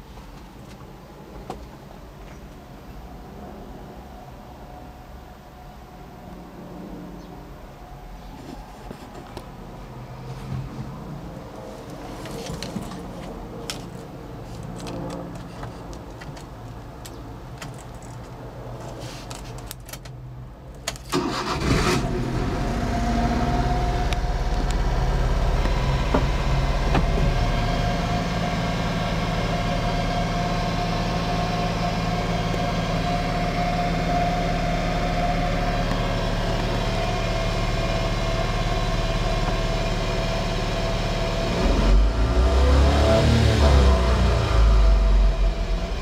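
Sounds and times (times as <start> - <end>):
engine cranking and idling: 19.3 - 40.4.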